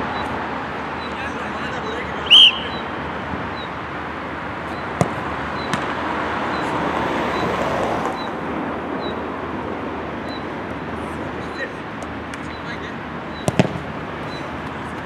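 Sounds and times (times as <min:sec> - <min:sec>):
outdoor background noise: 0:00.0 - 0:15.0
football kicked thud: 0:05.0 - 0:05.9, 0:13.4 - 0:13.8.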